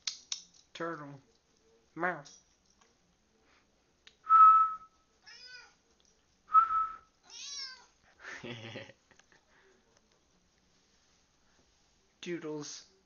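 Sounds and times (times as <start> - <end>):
person whistling: 4.3 - 4.9, 6.5 - 7.0
cat meowing: 5.2 - 5.8, 7.2 - 7.9.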